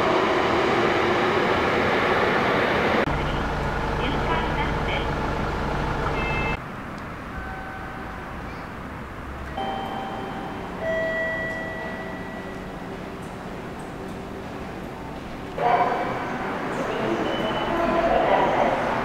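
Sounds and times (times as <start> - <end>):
electronic chime: 9.6 - 12.8.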